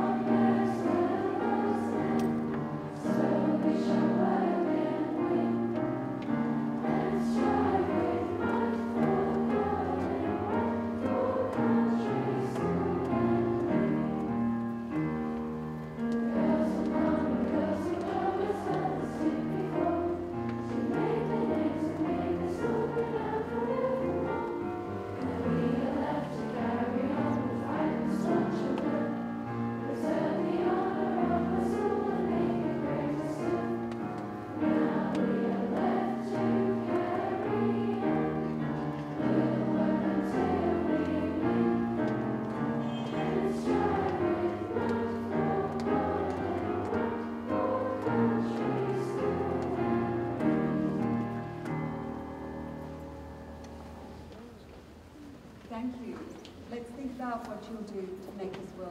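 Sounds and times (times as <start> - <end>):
girls singing together: 0.0 - 53.3
piano accompaniment: 0.0 - 54.9.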